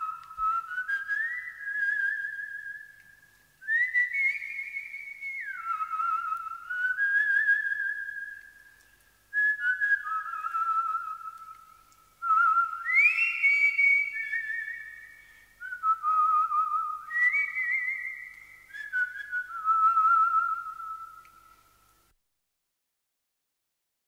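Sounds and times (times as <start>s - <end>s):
person whistling a melody: 0.0s - 11.6s, 12.2s - 21.5s.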